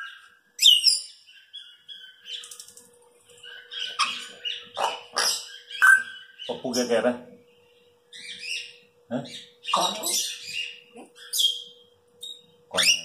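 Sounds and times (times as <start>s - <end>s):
parrot harsh calls: 3.5s - 6.7s, 12.7s - 13.0s.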